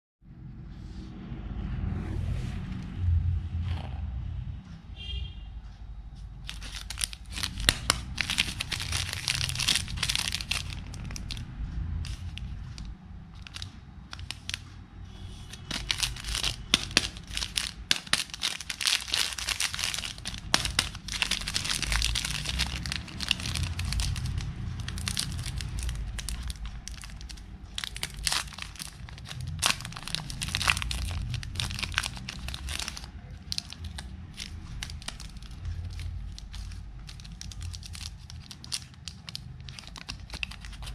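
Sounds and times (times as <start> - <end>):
foil rustling: 6.5 - 11.4, 15.6 - 40.9
plastic wrapper crinkling and tearing: 6.5 - 14.8, 15.4 - 40.9.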